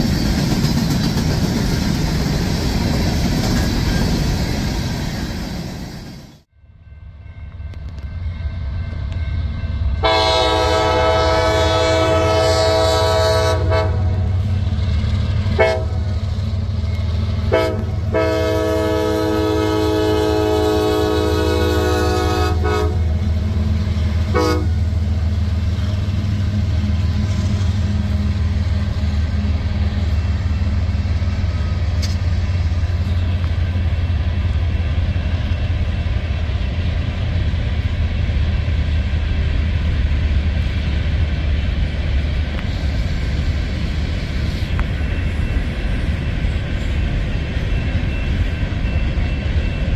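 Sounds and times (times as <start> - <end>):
locomotive engines rumbling: 0.0 - 49.9
train air horn blasts: 10.0 - 14.4, 15.5 - 16.2, 17.4 - 23.2, 24.2 - 24.9.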